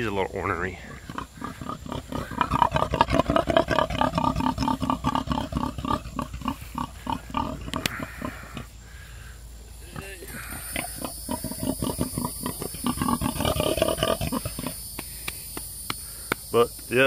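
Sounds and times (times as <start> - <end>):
pig grunting: 0.5 - 8.7, 9.9 - 14.8.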